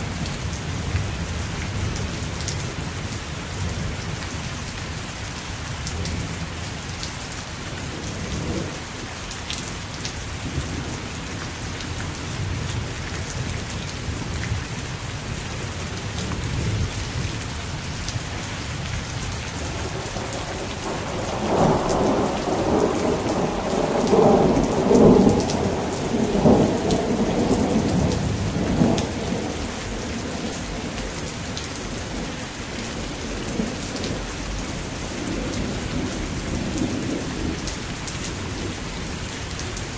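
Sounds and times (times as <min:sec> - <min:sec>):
steady rain falling: 0:00.0 - 0:39.9
thunder rumbling: 0:19.6 - 0:31.0.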